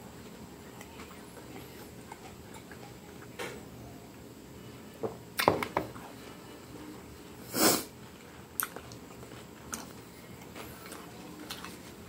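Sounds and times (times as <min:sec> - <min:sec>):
close chewing: 0:08.0 - 0:12.0.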